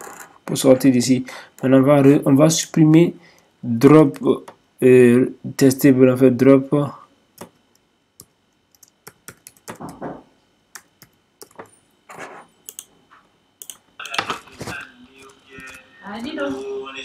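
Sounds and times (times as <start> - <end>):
keyboard typing: 7.4 - 10.0, 10.7 - 12.9, 13.6 - 14.4.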